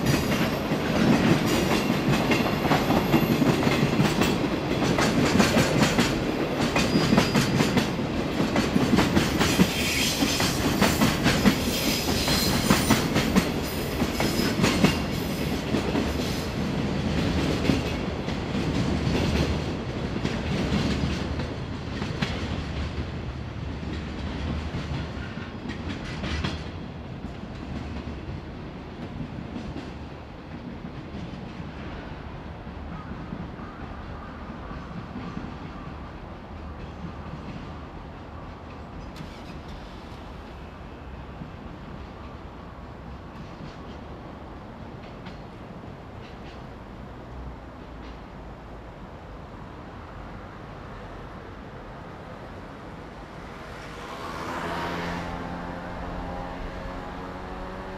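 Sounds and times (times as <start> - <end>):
train wheels clattering over rail joints: 23.8 - 28.2.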